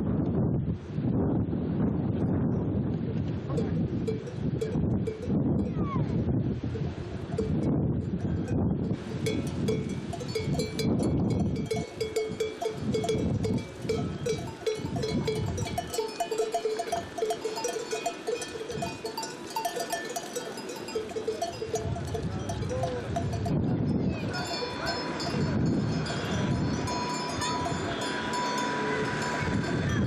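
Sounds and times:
sheep bells clanking: 0:03.6 - 0:05.8, 0:07.4 - 0:08.4, 0:09.2 - 0:30.0.

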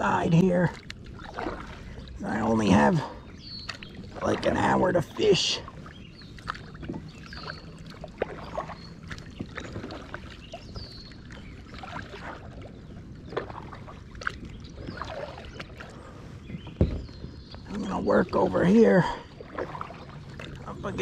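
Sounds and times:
paddle splashing through water: 0:00.0 - 0:21.0
light knocks: 0:16.6 - 0:17.2.

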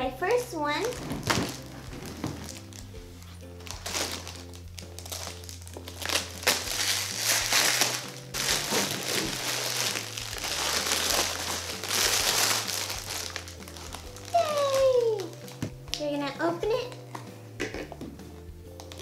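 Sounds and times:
quiet background music: 0:00.0 - 0:19.0
foil wrapper crinkling: 0:00.8 - 0:15.7, 0:18.8 - 0:19.0.

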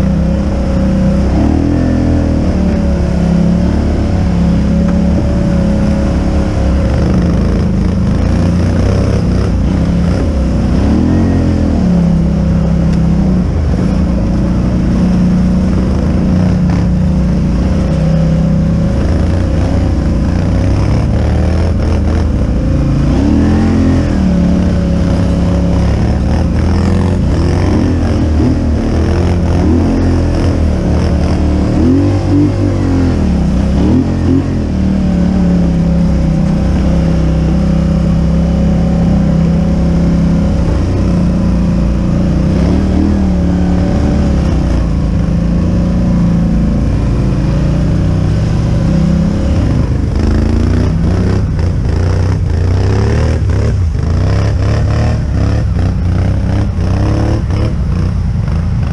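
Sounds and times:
atv engine revving: 0:00.0 - 0:58.9.

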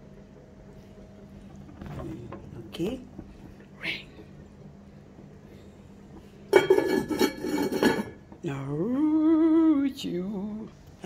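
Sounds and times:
pot lid clattering and scraping: 0:06.5 - 0:08.3.

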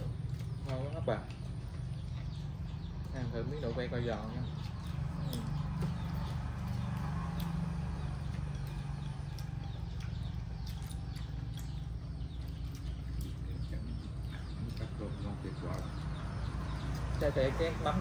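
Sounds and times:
small birds chirping: 0:00.0 - 0:18.0.

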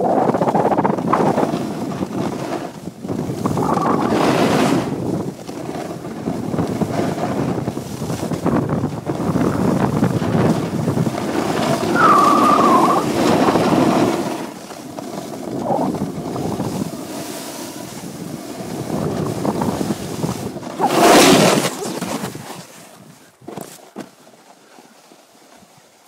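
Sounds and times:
wind rushing over microphone: 0:00.0 - 0:22.6
skis hissing on snow: 0:11.4 - 0:21.9.

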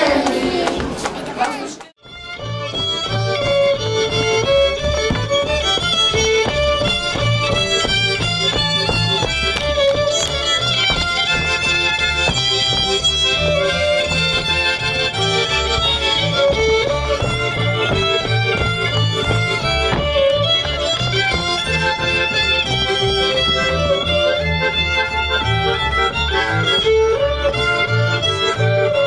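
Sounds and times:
fiddle-led instrumental music: 0:02.0 - 0:29.0.

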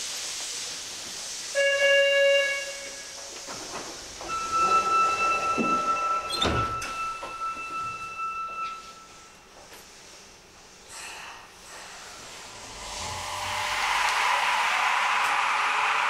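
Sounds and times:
train car hum: 0:00.0 - 0:16.0
sliding doors thudding shut: 0:03.4 - 0:07.4
electronic warning tone: 0:04.3 - 0:09.0.

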